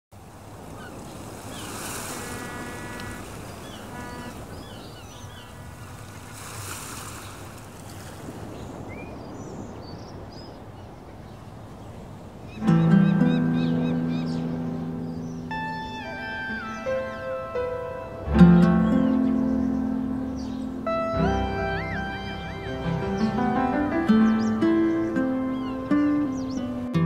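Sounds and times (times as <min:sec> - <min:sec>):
waves washing: 0:00.1 - 0:27.0
wind: 0:00.1 - 0:27.0
birds chirping: 0:00.2 - 0:27.0
surf: 0:00.2 - 0:27.0
music with held low notes: 0:12.6 - 0:27.0.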